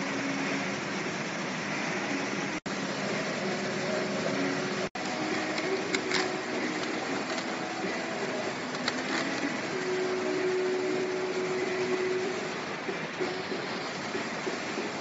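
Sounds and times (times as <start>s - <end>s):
machinery whirring drone: 0.0s - 15.0s.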